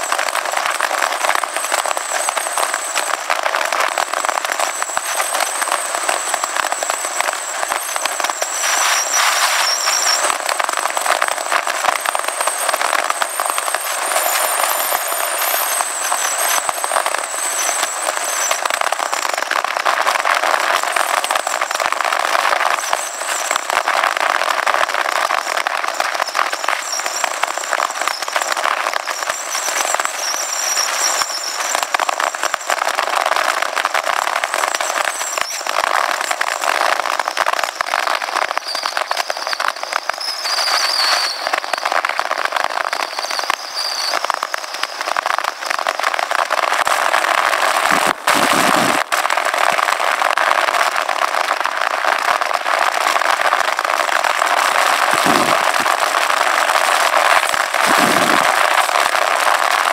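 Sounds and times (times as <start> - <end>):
thin wavering high whine: 1.1 - 19.6.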